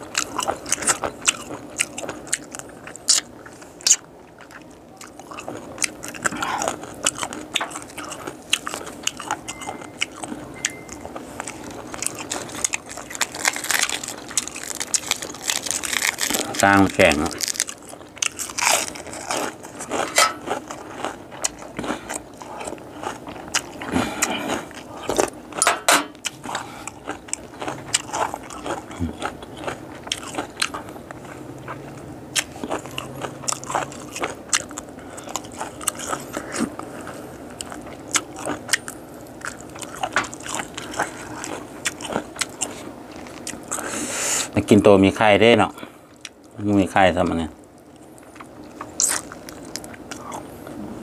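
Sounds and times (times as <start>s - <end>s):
chewing: 0.0s - 44.0s, 47.7s - 50.8s
crisp crunches of bones: 11.0s - 43.8s, 47.7s - 50.5s.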